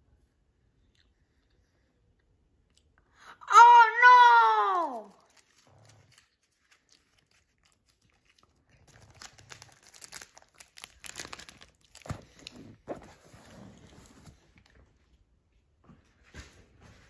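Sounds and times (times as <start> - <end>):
candy wrapper crinkling: 4.7 - 12.9.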